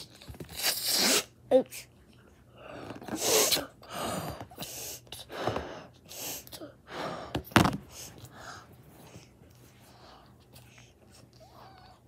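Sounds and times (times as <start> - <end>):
puffs blown into balloon: 0.5 - 1.4, 3.1 - 3.7
child gasping breaths: 3.8 - 10.4.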